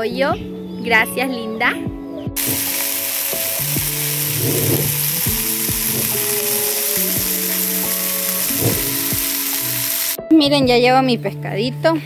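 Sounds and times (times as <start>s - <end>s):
background music: 0.0s - 12.0s
fish sizzling in a frying pan: 2.4s - 10.2s.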